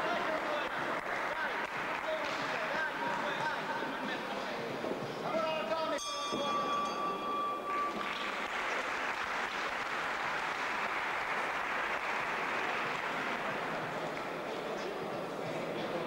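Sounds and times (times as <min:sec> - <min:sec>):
audience applauding: 0:00.0 - 0:03.4, 0:07.7 - 0:14.5
ring bell struck: 0:05.9 - 0:08.5.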